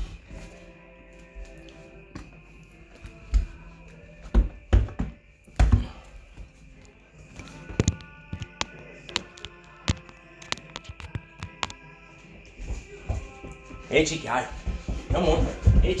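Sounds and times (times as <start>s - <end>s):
background music: 0.0s - 16.0s
sheep's hooves on hard floor: 12.5s - 16.0s.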